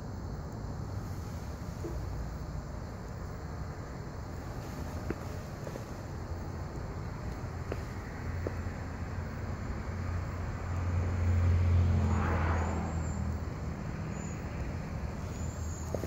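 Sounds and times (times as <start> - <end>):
steady low hum: 0.0 - 10.6
vehicle passing by: 7.5 - 16.0.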